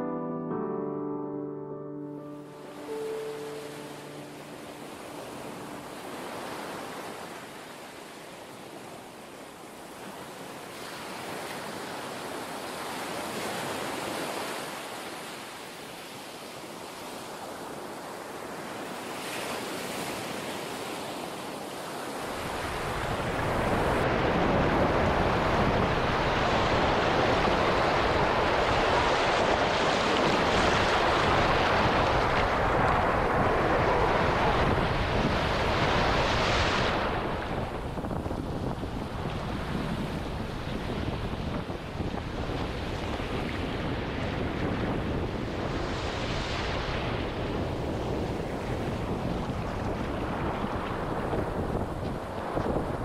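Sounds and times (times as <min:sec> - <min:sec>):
surf breaking on beach: 0:16.6 - 0:53.0
wind buffeting microphone: 0:22.3 - 0:53.0.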